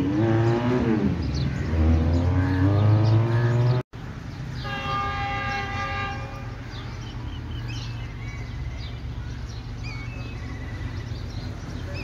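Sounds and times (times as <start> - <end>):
birds chirping: 0.0 - 12.0
train horn blast: 4.6 - 6.6.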